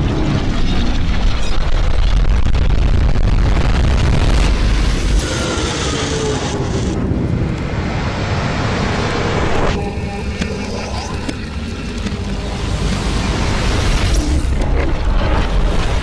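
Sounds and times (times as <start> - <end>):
explosion rumble: 0.2 - 9.7.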